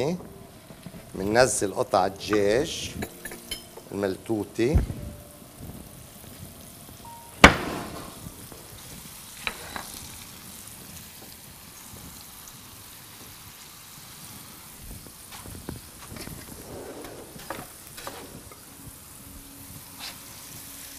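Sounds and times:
chicken frying in hot oil: 4.7 - 20.9
sharp knock: 7.4 - 8.2.

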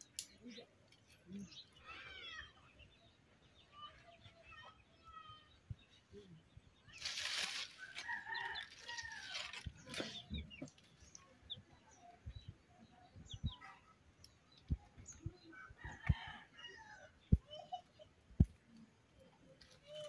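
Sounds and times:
chickens clucking: 7.5 - 20.0.

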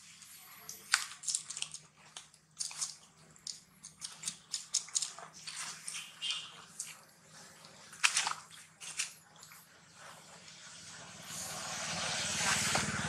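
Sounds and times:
monkey chewing and nibbling: 0.5 - 9.2.

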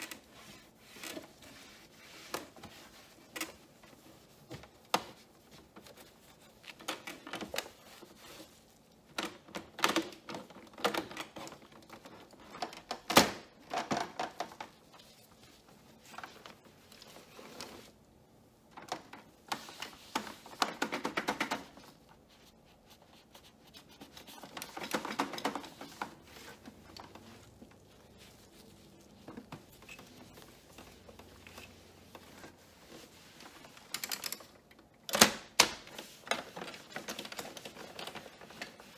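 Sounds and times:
cloth rubbing strokes: 0.0 - 9.1, 14.6 - 18.3, 21.6 - 33.9.

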